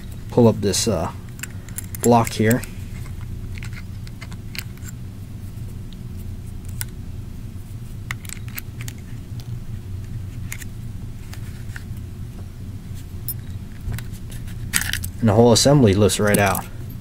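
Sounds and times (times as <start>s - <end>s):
steady low hum: 0.0s - 17.0s
small metal parts clicking: 1.3s - 5.0s, 14.7s - 15.2s.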